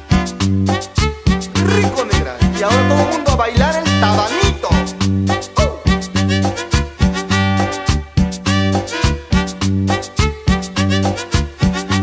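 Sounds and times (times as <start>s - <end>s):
drums: 0.0s - 12.0s
keyboard: 0.0s - 12.0s
dance band music: 1.4s - 12.0s
repeating bass line: 1.6s - 4.0s.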